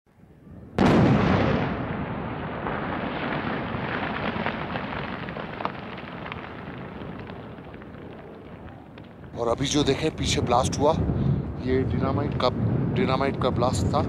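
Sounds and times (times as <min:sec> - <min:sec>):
dynamite blast boom: 0:00.7 - 0:11.4.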